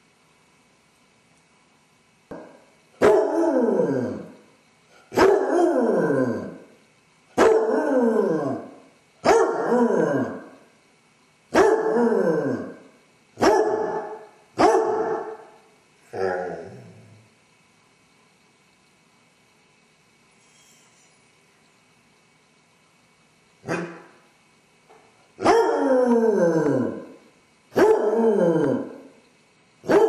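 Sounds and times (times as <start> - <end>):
dog baying howls: 3.0 - 4.3, 5.2 - 6.6, 9.3 - 10.5, 25.4 - 27.2, 27.8 - 29.0.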